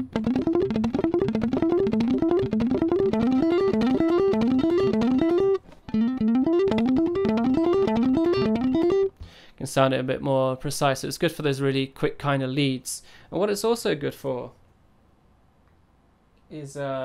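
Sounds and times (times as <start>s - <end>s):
electric guitar fast picked lead: 0.0s - 9.1s.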